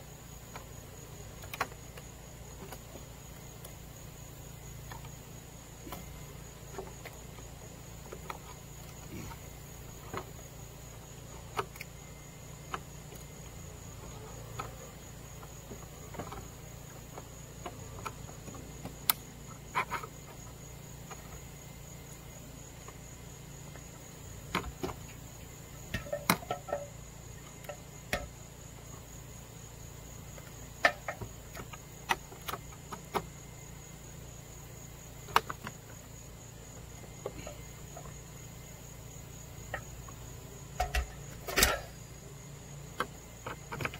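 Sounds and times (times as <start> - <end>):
insects calling: 0.0 - 43.9
clicks and knocks on metal gutter: 25.8 - 26.9, 27.6 - 28.3, 40.8 - 41.9.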